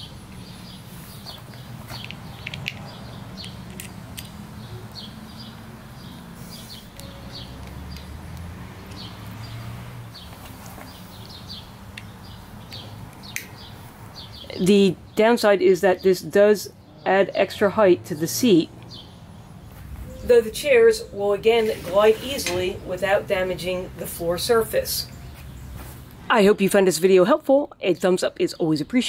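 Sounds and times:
small birds chirping: 0.0s - 26.9s
sharp clicks: 1.5s - 5.0s.

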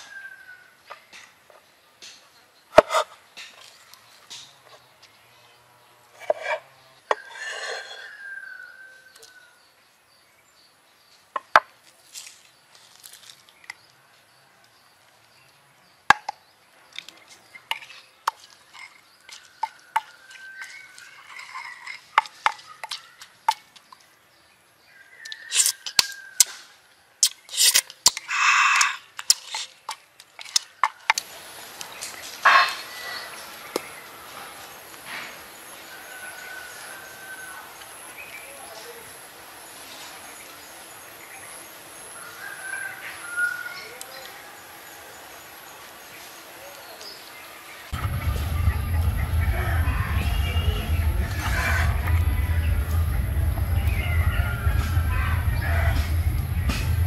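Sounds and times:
animal calls: 32.4s - 33.6s.

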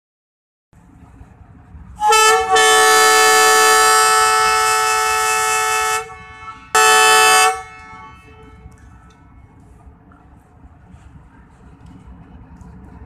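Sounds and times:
locomotive air horn blasts: 2.0s - 9.7s.

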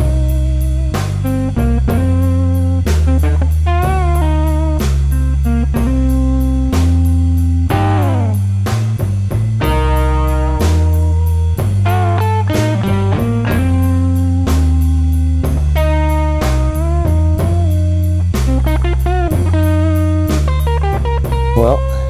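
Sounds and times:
electric guitar with bass and drums: 0.0s - 22.0s.

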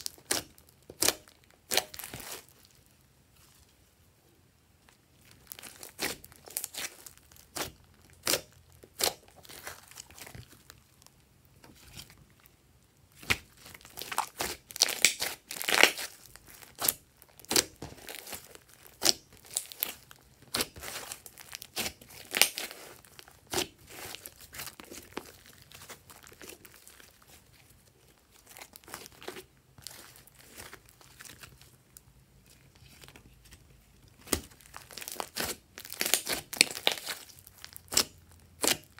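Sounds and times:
slime squeezed with sticky pops: 13.1s - 26.8s, 34.2s - 38.9s.

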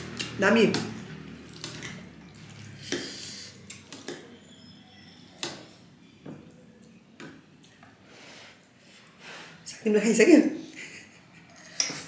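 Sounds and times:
cutlery clinking on ceramic bowls: 11.4s - 12.0s.

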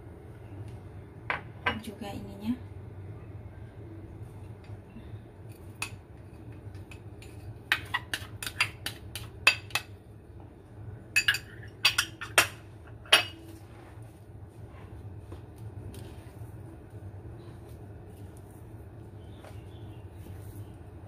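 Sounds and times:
ceramic bowl clinking on glass bowl: 11.2s - 13.4s.

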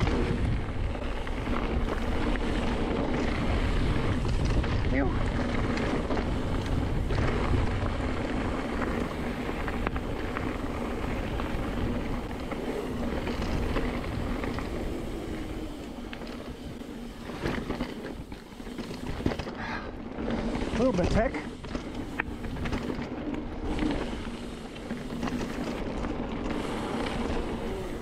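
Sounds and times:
wind buffeting microphone: 0.0s - 19.4s
tyres rumbling on gravel: 0.0s - 28.0s
bike clattering over rocks: 3.2s - 19.6s.

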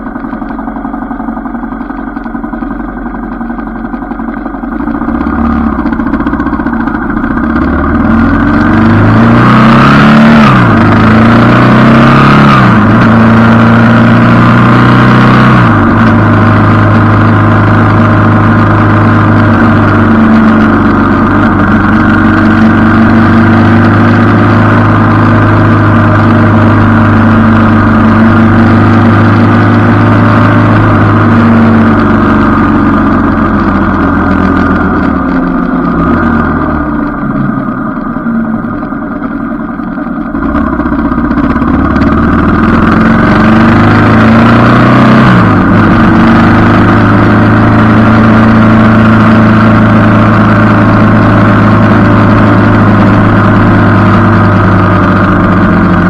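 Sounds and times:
motorcycle engine accelerating: 0.0s - 56.0s.

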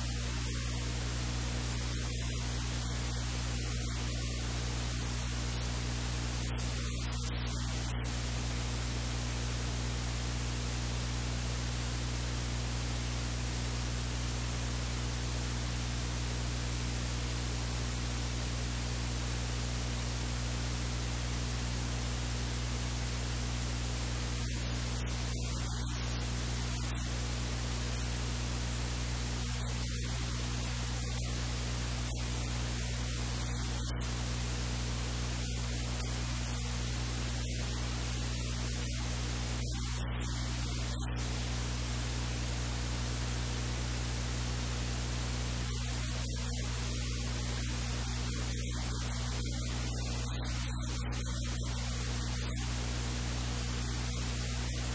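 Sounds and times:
low electrical hum: 0.0s - 54.9s
recording hiss: 0.0s - 54.9s.

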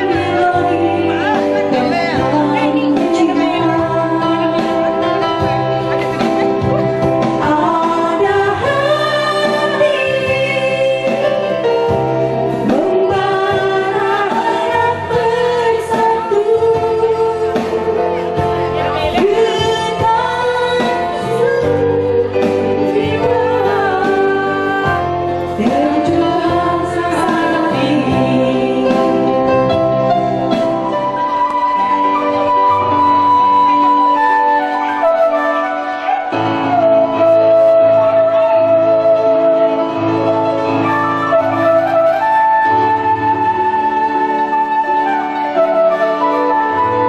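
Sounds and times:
woman singing: 0.0s - 5.6s, 7.3s - 11.8s, 12.6s - 29.8s
instrumental accompaniment: 0.0s - 47.0s.

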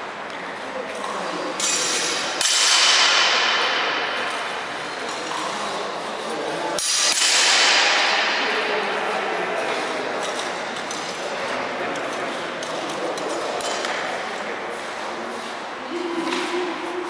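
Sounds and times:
swords clashing with ringing: 1.6s - 5.3s, 6.8s - 8.4s.

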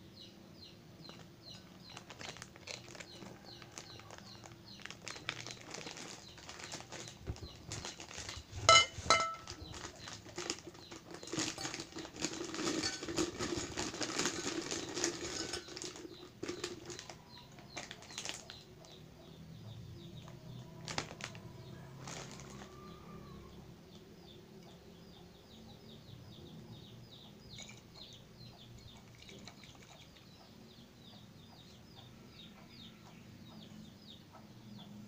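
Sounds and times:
crackers rattling into glass jar: 1.1s - 18.7s, 20.2s - 22.9s, 27.5s - 27.9s, 28.8s - 30.3s.

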